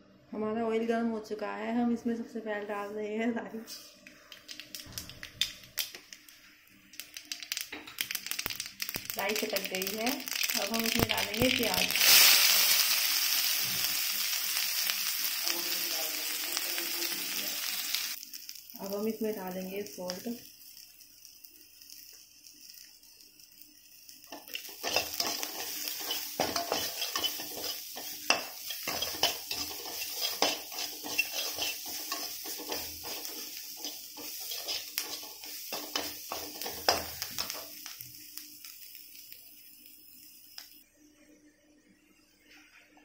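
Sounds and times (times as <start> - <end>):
onions sizzling in oil: 3.8 - 40.9
metal spatula scraping pan: 24.3 - 37.6.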